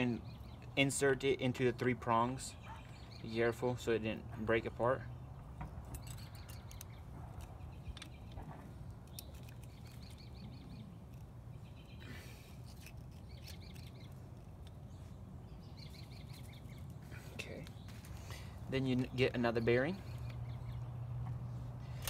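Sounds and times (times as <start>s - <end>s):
small birds chirping: 0.0s - 22.0s
light clicks of parts handled: 5.4s - 11.5s, 12.3s - 15.1s.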